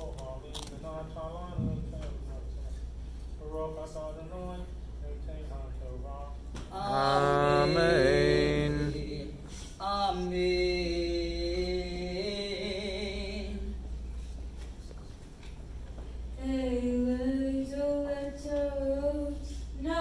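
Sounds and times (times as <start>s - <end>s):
person chanting: 6.8s - 9.3s.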